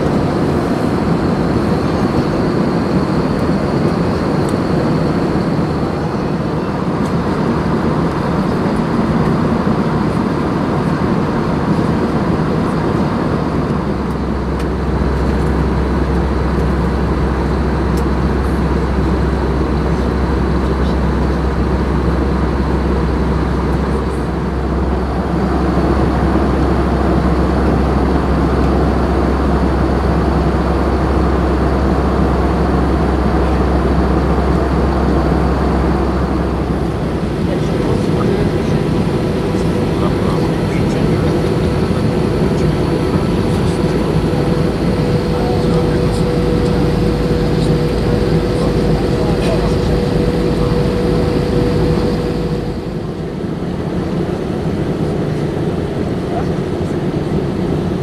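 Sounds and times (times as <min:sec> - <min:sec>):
airplane cabin airflow and engine: 0:00.0 - 0:58.0
deep low hum: 0:13.4 - 0:57.4.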